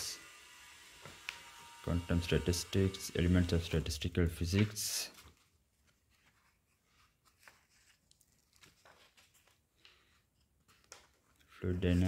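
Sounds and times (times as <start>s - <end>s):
book pages turning: 4.3s - 12.0s.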